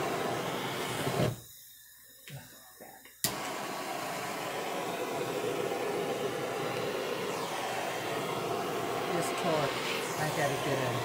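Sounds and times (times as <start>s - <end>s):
torch flame rushing: 0.0s - 1.4s, 3.3s - 11.0s
torch igniter clicking: 3.1s - 4.2s, 5.8s - 9.1s.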